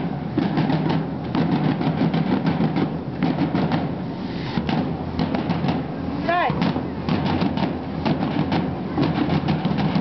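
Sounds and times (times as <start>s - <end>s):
field drums beating fast: 0.0s - 10.0s.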